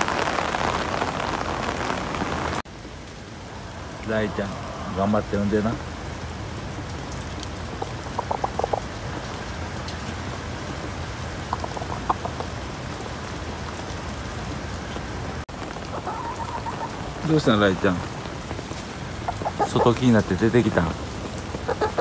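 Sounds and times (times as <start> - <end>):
steady rain falling: 0.0 - 22.0
hen clucking softly: 7.8 - 8.9, 11.5 - 12.5, 15.9 - 17.0, 19.3 - 20.0, 21.6 - 22.0.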